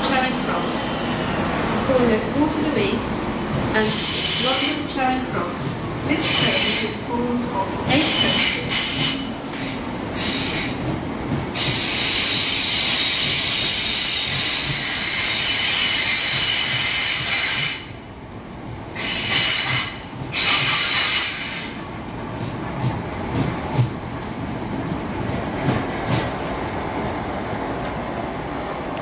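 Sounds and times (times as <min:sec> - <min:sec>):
low train rumble: 0:00.0 - 0:29.0
train wheels squealing: 0:03.9 - 0:04.9, 0:11.6 - 0:18.0, 0:19.0 - 0:21.8.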